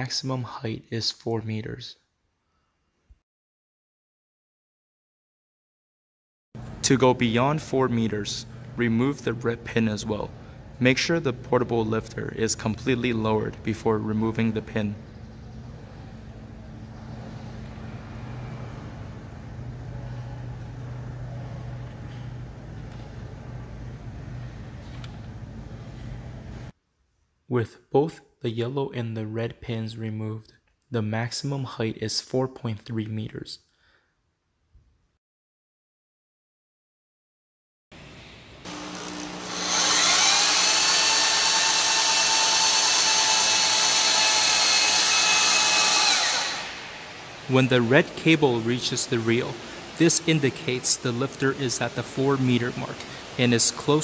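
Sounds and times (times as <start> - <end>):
steady low hum: 6.6 - 26.7, 46.3 - 54.0
electric winch motor: 38.6 - 47.4.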